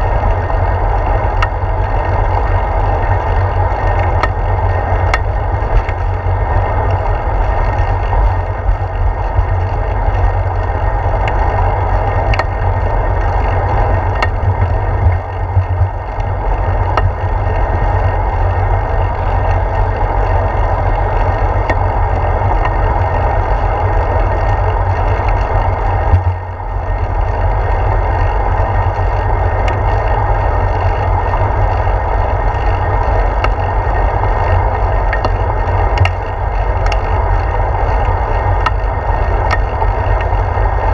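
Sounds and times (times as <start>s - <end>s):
bike clicks and rattles: 0.0s - 40.9s
road rumble: 0.0s - 40.9s
wind rush: 0.0s - 40.9s.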